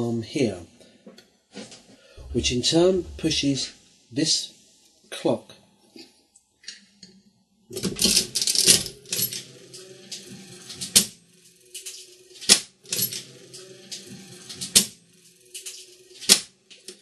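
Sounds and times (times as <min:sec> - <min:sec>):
steady low hum: 0:02.2 - 0:04.3
slot machine mechanism clatter: 0:07.8 - 0:11.1, 0:11.7 - 0:16.9.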